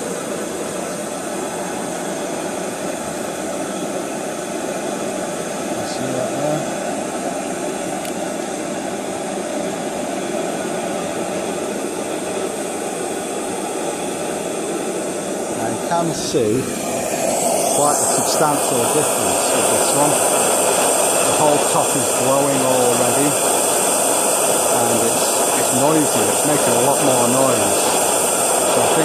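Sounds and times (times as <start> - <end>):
gas stove burner roar: 0.0 - 29.0.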